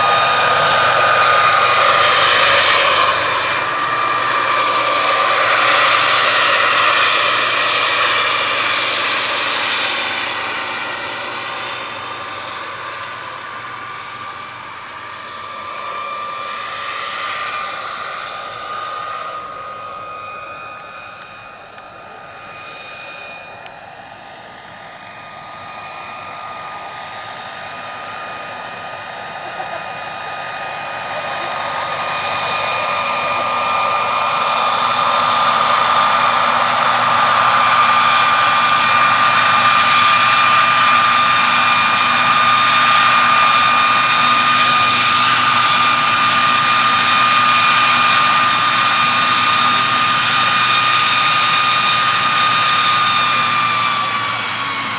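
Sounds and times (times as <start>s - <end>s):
model helicopter turbine whine: 0.0s - 54.9s.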